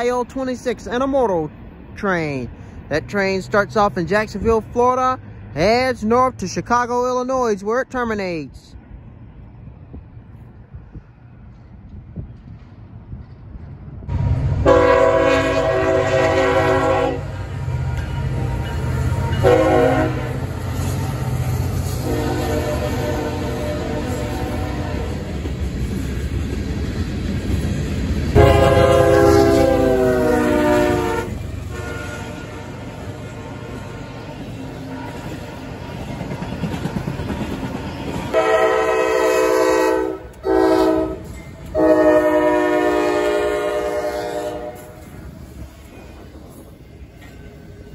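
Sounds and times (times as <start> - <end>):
low rumble of locomotives: 0.0 - 47.9
locomotive air horn blowing: 14.6 - 17.4, 19.1 - 20.5, 22.0 - 25.2, 28.4 - 34.2, 38.3 - 45.0.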